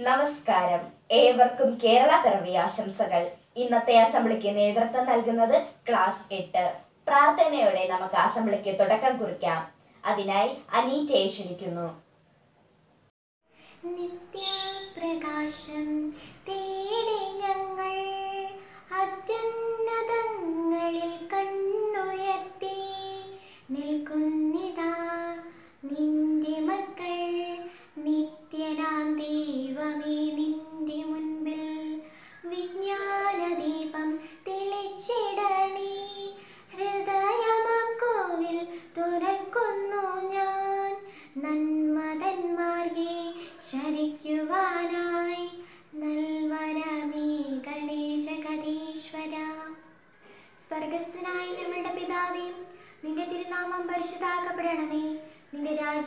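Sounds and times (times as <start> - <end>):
girl singing unaccompanied: 13.6 - 56.0.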